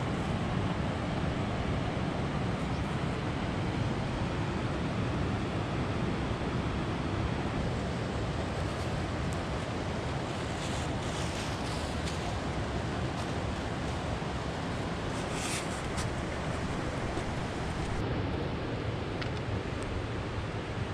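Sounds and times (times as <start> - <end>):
river flowing: 0.0 - 20.9
wind on microphone: 5.2 - 20.9
faint rustles: 14.9 - 18.0.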